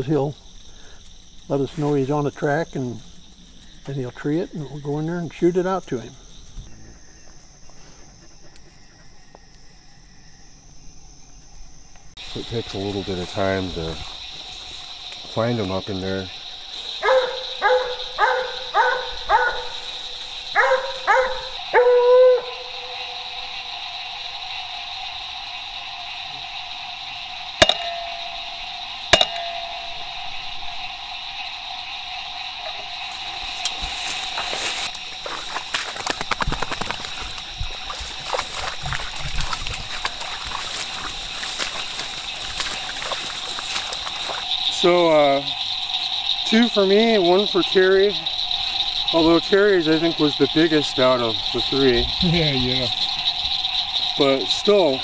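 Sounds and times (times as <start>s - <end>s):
night insect chorus: 0.0s - 55.0s
dog barking: 17.0s - 19.8s, 20.5s - 23.0s
dog bawling: 17.0s - 19.8s, 20.6s - 23.2s
pushing through rustling brush: 33.0s - 44.5s
footsteps sloshing through water: 33.0s - 44.6s.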